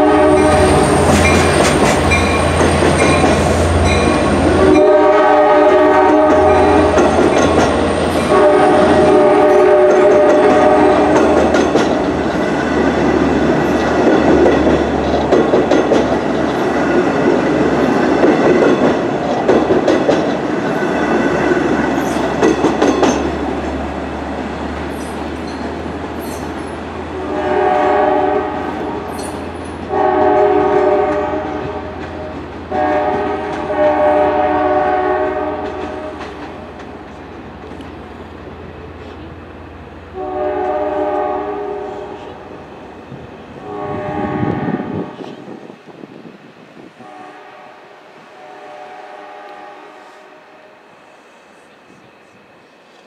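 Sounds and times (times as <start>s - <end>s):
train horn: 0.0s - 1.4s, 3.6s - 7.3s, 8.1s - 11.6s, 27.1s - 36.4s, 40.1s - 42.7s, 43.6s - 45.5s, 47.0s - 52.4s
train cars rumbling: 0.0s - 53.0s
wheels clacking over rail joints: 0.4s - 4.9s, 5.6s - 23.8s, 35.6s - 38.2s.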